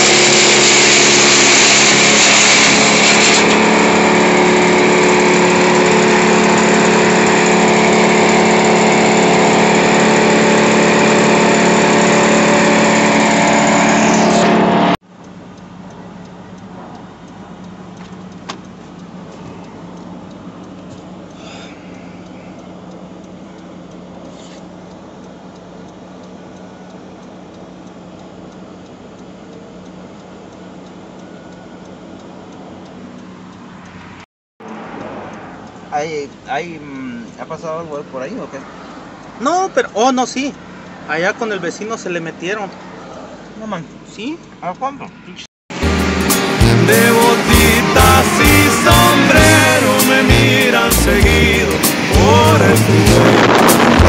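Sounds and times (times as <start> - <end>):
brush chipper engine running: 0.0 - 15.0, 45.7 - 54.0
vehicle engine idling: 0.3 - 14.3.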